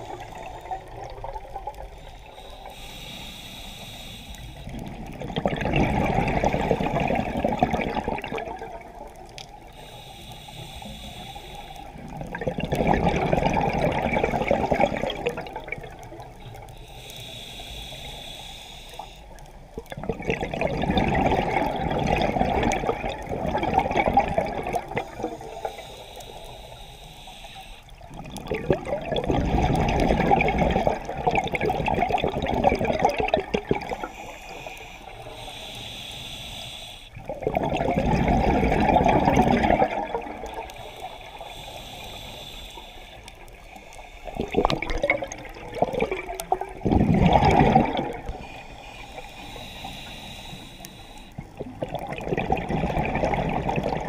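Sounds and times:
bubbling exhaled air underwater: 0.0 - 3.0, 4.6 - 9.7, 11.8 - 16.7, 19.7 - 26.6, 27.9 - 35.7, 37.2 - 54.0
regulator hiss: 2.0 - 4.7, 9.7 - 12.1, 16.4 - 19.4, 25.2 - 28.0, 34.0 - 37.2, 40.6 - 44.4, 48.3 - 51.4.

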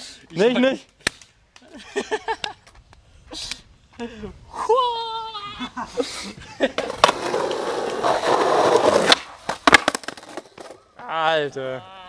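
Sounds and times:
skateboard wheels rolling on asphalt: 6.6 - 10.9
skateboard clacking on street: 6.8 - 10.8
skateboard knocks: 8.6 - 10.8
skateboard tail pop: 9.0 - 10.8.

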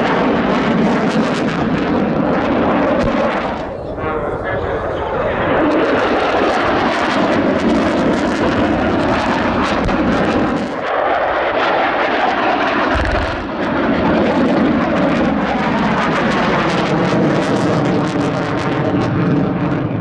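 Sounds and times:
fighter jets flying low: 0.0 - 20.0
low thud: 12.9 - 13.5.

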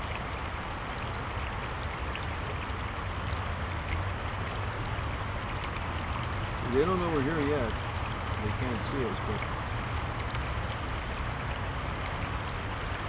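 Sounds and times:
creek water rushing over rocks: 0.0 - 13.0.

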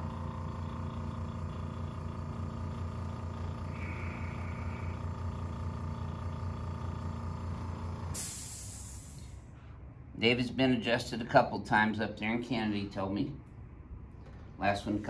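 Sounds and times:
mechanical hum: 0.0 - 15.0
high whine: 3.6 - 5.5.

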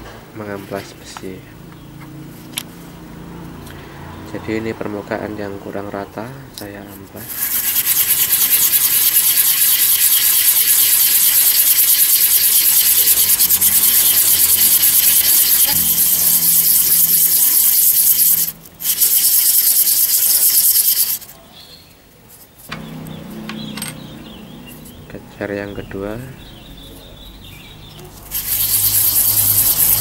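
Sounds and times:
metal disc rubbed on sandpaper: 7.2 - 21.3, 28.2 - 30.0.

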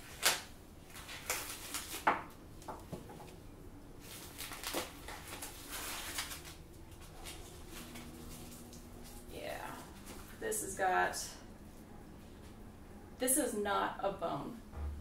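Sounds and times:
knife slitting plastic film: 0.0 - 2.1, 4.0 - 8.0
plastic wrap crinkling: 0.0 - 2.4, 4.0 - 10.4
sharp plastic crackles: 0.0 - 2.8, 4.0 - 9.3.

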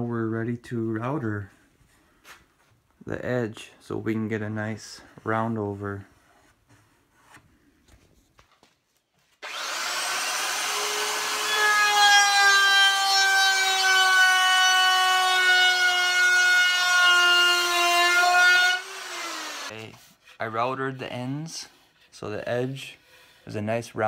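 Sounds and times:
wood router whining: 9.4 - 19.8.

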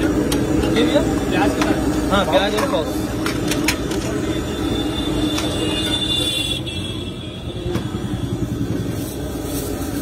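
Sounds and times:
road traffic rumble: 0.0 - 10.0.

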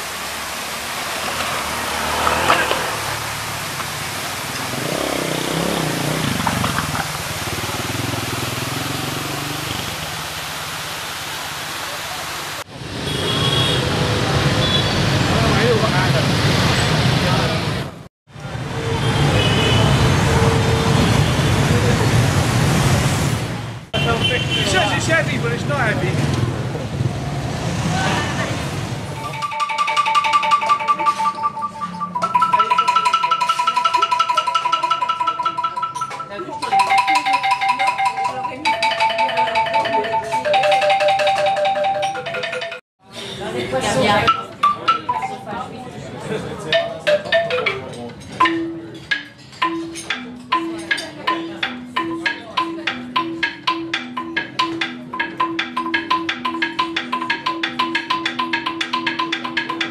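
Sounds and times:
quick struck notes music: 29.2 - 42.8, 43.9 - 45.7, 46.6 - 59.9.

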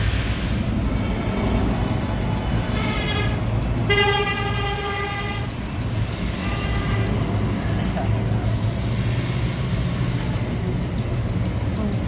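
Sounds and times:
truck engine rumble: 0.0 - 12.0
vehicle horn honking: 2.7 - 5.5, 6.4 - 7.2.

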